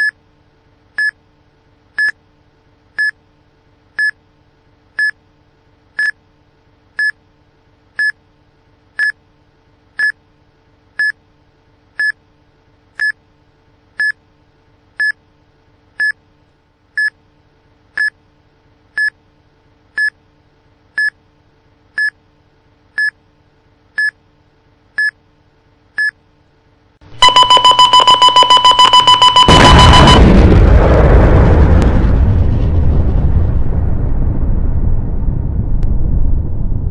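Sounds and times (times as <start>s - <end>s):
countdown timer beeping: 27.2s - 30.2s
rapid two-tone alarm beeping: 27.2s - 30.4s.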